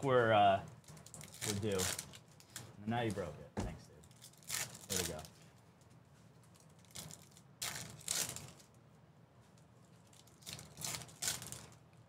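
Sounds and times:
foil wrapper crinkling and tearing: 0:00.8 - 0:02.6, 0:04.0 - 0:05.4, 0:06.5 - 0:08.7, 0:10.0 - 0:11.8.

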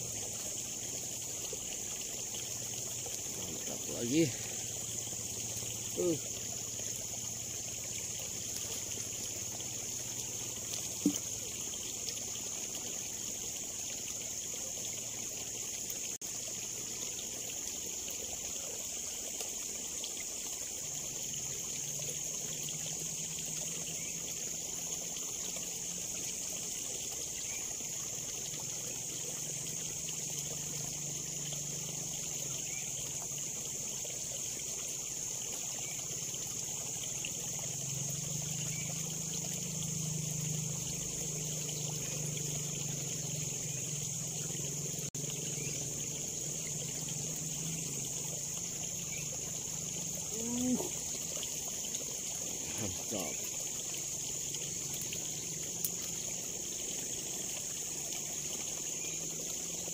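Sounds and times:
steady high hiss: 0:00.0 - 0:26.7
water trickling in ditch: 0:00.0 - 0:59.9.

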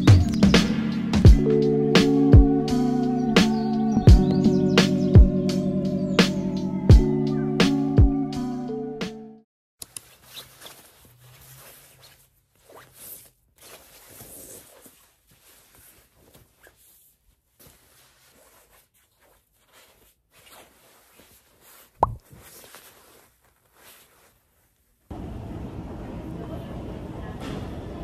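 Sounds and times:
fabric sleeve rustling: 0:09.8 - 0:25.1.

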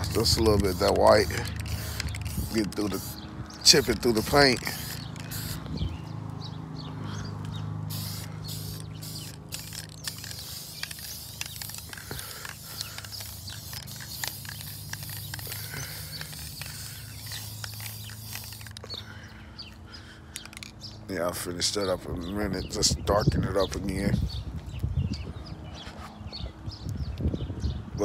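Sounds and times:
aerosol spray can hissing: 0:00.0 - 0:05.7, 0:07.9 - 0:18.8.

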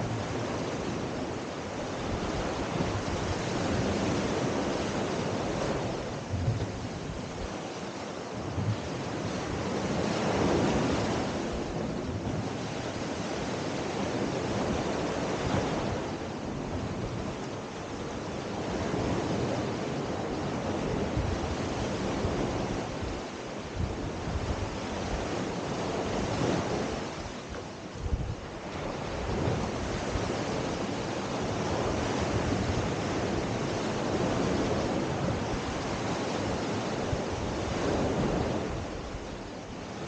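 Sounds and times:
waves washing on sand: 0:00.0 - 0:40.0.

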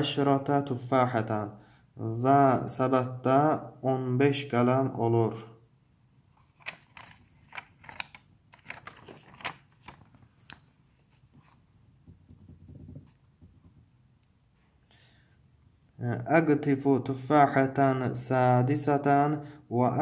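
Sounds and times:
paper page turning: 0:06.4 - 0:11.7.

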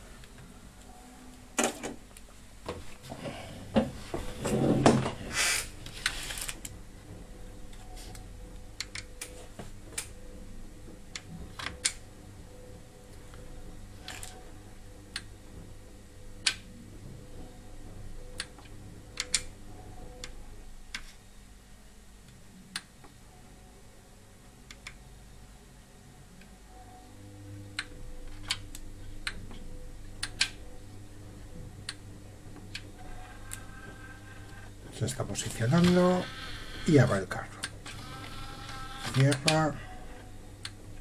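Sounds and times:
faint steady hum: 0:00.0 - 0:41.0
disc loader mechanism clicking: 0:35.5 - 0:39.8.

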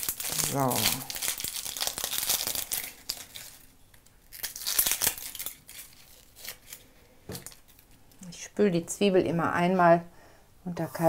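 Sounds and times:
onion skin crackling and tearing: 0:00.0 - 0:08.0.

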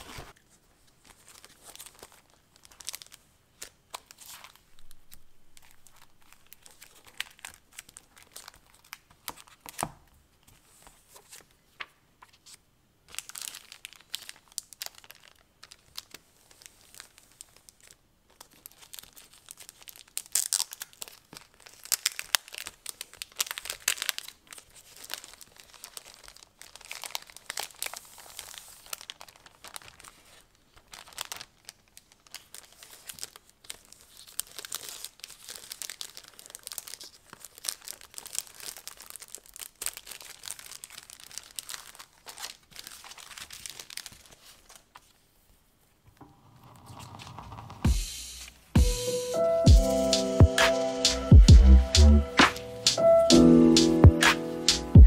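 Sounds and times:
plastic wrapping crinkling: 0:00.0 - 0:48.8.

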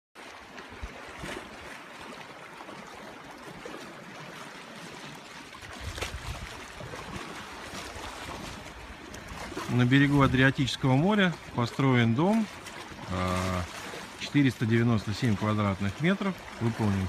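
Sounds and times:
waves lapping on rocky shore: 0:00.2 - 0:17.0.

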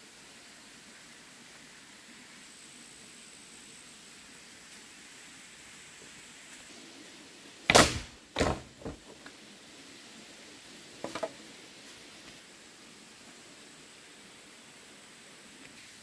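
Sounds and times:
steady hiss: 0:00.0 - 0:16.0
sharp knocks: 0:07.7 - 0:09.0
rattle of small knocks: 0:07.7 - 0:09.2, 0:11.0 - 0:11.4.

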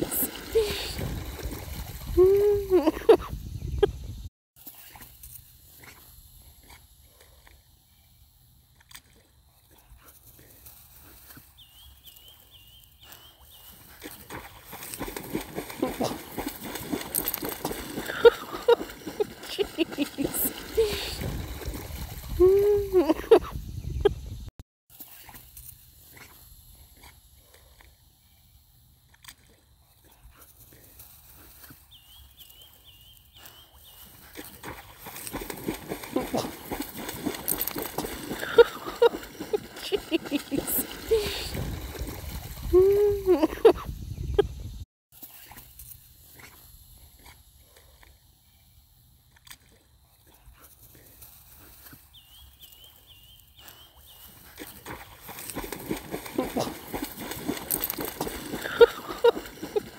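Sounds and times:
dog paddling in water: 0:13.2 - 0:23.3, 0:33.6 - 0:43.7, 0:53.9 - 0:59.9.

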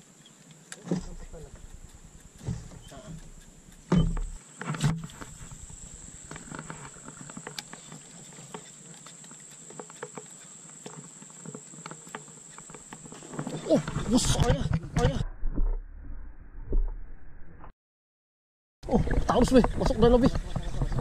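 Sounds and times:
steady high whine: 0:00.9 - 0:17.7
fishing reel ticking: 0:01.1 - 0:04.4.

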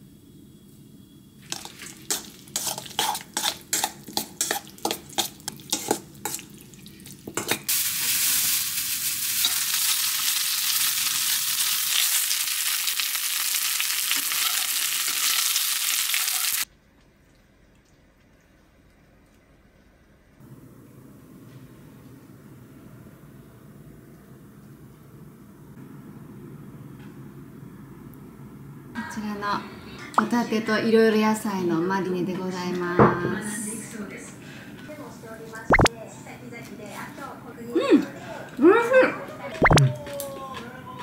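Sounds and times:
sauce stirred in steel bowl: 0:01.4 - 0:07.7
chicken sizzling in a pan: 0:01.4 - 0:16.7.

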